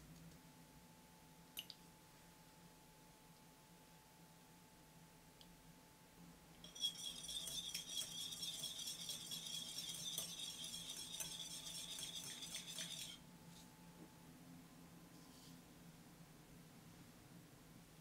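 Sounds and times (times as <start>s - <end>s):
whisk clinking against glass bowl: 6.6s - 13.2s.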